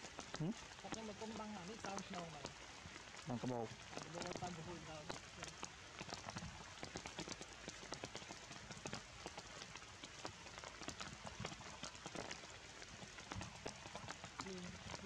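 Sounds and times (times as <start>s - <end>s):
rain on leaves and rocks: 0.0s - 15.0s.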